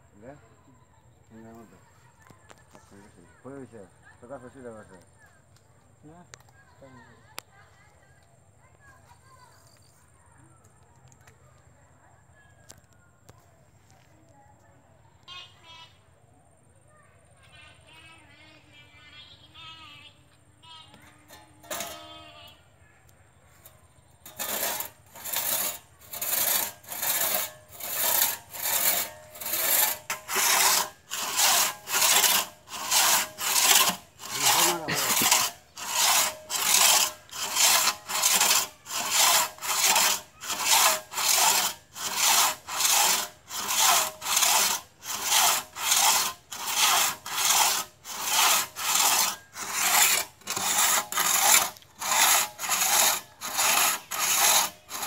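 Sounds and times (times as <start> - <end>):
crosscut saw rasping: 21.0 - 22.3, 23.7 - 55.0.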